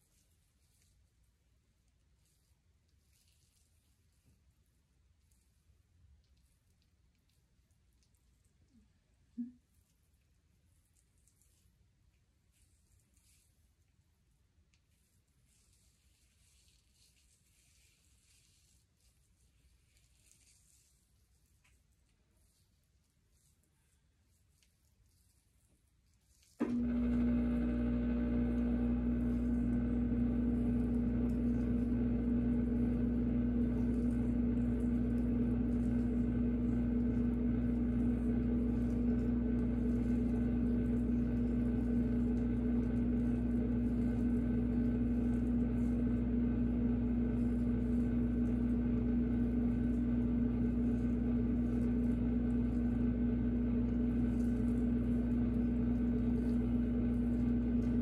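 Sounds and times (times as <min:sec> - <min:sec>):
appliance electric hum: 0:26.3 - 0:58.0.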